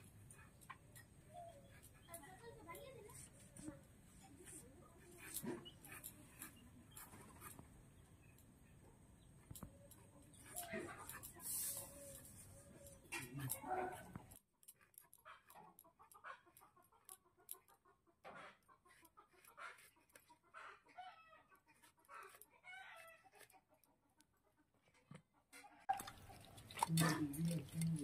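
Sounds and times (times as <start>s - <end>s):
hen clucking: 15.2s - 28.0s.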